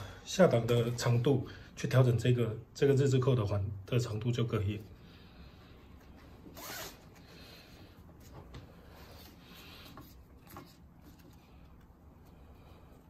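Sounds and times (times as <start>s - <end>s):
nylon strap sliding through buckle: 6.5s - 7.2s.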